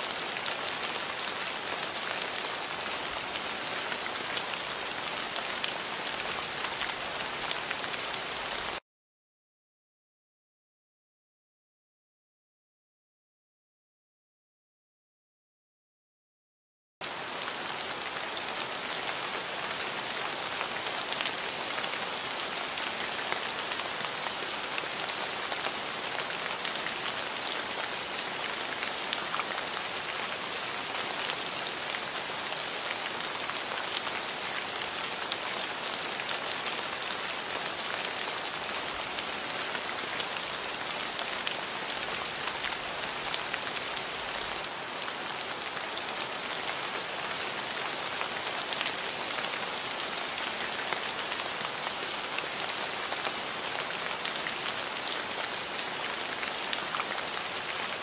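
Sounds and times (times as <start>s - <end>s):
rain on hard surface: 0.0s - 8.8s, 17.0s - 58.0s.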